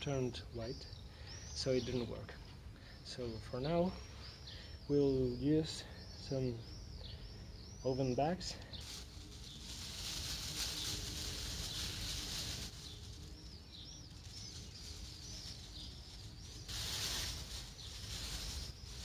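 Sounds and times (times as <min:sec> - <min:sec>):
birds chirping: 0:00.0 - 0:19.0
plastic bag crinkling: 0:08.8 - 0:19.0.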